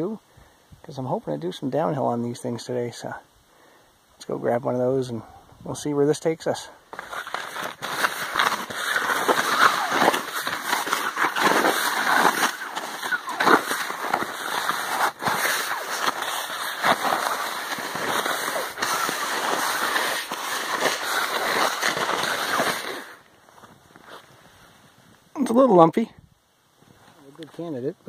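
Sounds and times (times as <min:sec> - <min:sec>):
skis shuffling through snow: 0:06.9 - 0:25.1.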